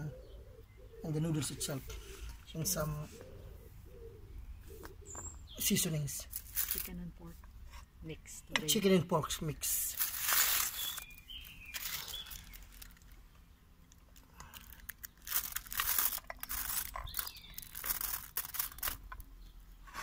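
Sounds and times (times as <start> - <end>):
aluminium foil crinkling: 6.3 - 7.0, 9.7 - 13.2, 13.9 - 19.3.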